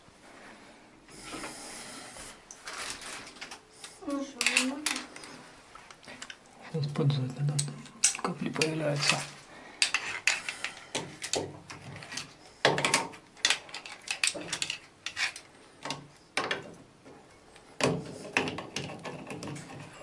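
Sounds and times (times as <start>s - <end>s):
wrench clicking and scraping on metal: 12.0s - 15.5s.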